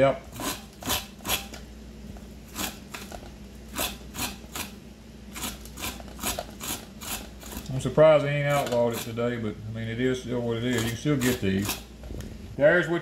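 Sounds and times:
corn cutter scraping kernels: 0.0 - 1.6, 2.5 - 9.4, 10.6 - 11.9.

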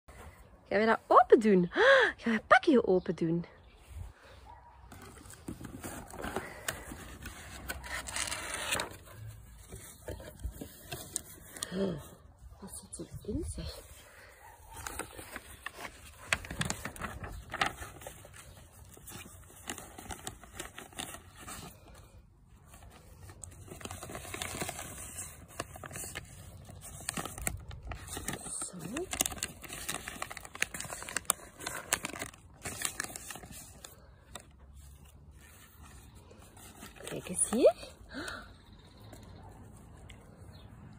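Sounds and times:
cardboard scraping: 4.9 - 11.6
plastic packaging crinkling: 4.9 - 11.8, 13.8 - 22.1, 22.7 - 37.9
wrapping rustling: 4.9 - 12.1, 13.6 - 38.2.

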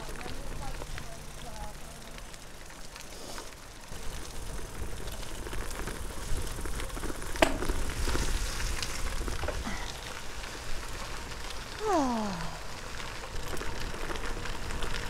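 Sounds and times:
bike tyres crackling on gravel: 0.0 - 15.0.

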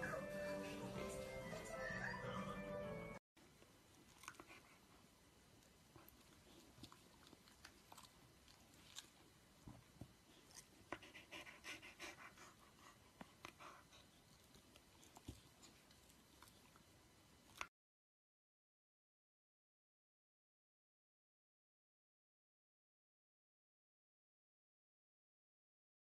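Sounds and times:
dog licking lips and smacking: 5.6 - 9.4.

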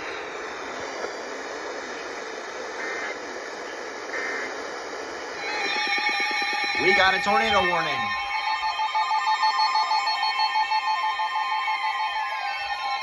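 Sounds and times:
radio static hiss: 0.0 - 9.4.

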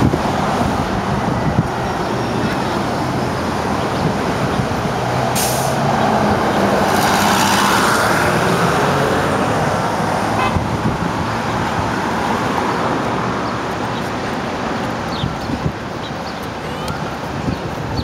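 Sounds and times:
bus diesel engine passing: 0.0 - 18.0
street traffic: 0.0 - 18.0.

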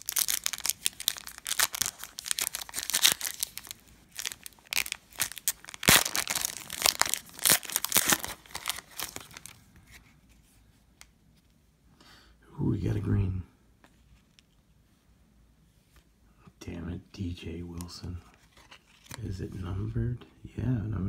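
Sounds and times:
foil wrapper crinkling and tearing: 0.0 - 9.6.

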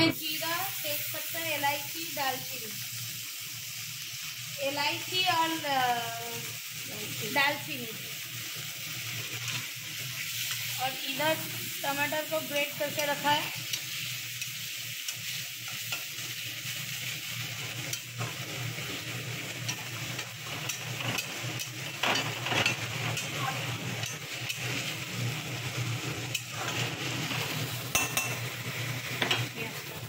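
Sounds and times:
onion and spices sizzling in oil: 0.0 - 30.0.

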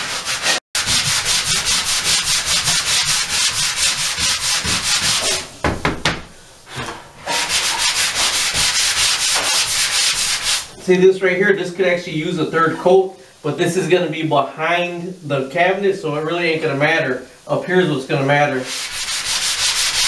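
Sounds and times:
sanding pad rubbing on wall: 0.0 - 5.5, 6.7 - 10.8, 18.6 - 20.0.

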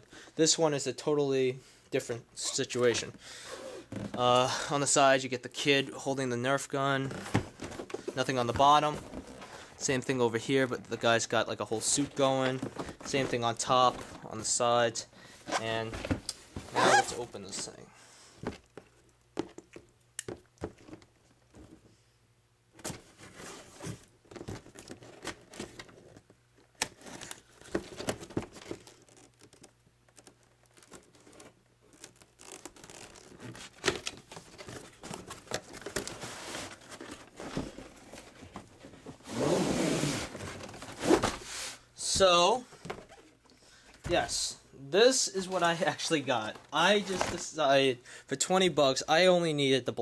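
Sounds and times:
cardboard scraping: 7.0 - 9.8, 11.8 - 14.6, 15.4 - 17.7, 30.2 - 42.2
cardboard clicks and rustles: 7.0 - 11.0, 11.8 - 14.6, 22.8 - 39.4.

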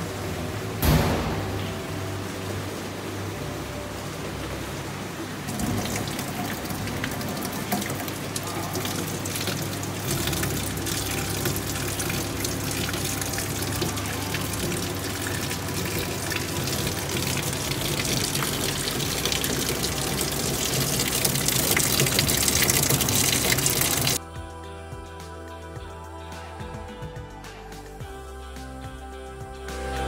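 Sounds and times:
low hum: 0.0 - 30.0
water pouring into a tank: 5.1 - 24.2.

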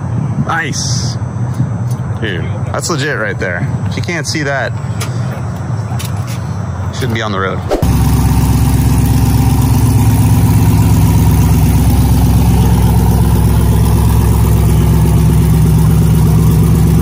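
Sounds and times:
truck engine idling loudly: 7.8 - 17.0.

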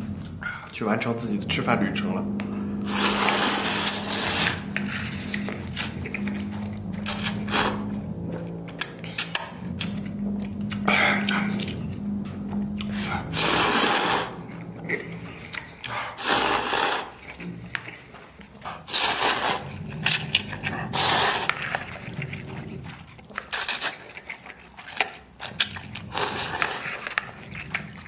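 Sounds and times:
person slurping noodles: 2.7 - 6.0, 7.0 - 7.9, 12.8 - 17.6, 18.8 - 21.6, 26.0 - 27.2.

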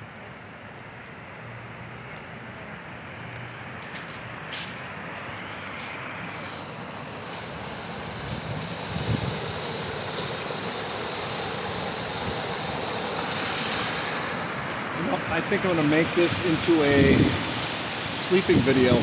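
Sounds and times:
creek water rushing over rocks: 4.8 - 19.0.

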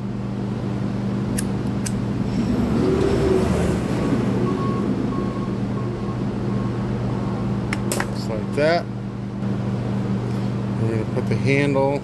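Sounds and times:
electric fans humming: 0.0 - 12.0
lighter clicks: 1.3 - 2.0.

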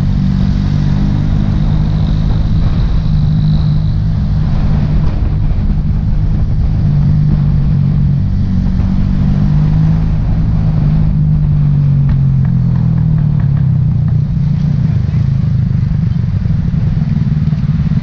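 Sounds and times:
traffic rumble: 0.0 - 18.0
small motorbike engine running: 11.8 - 18.0.

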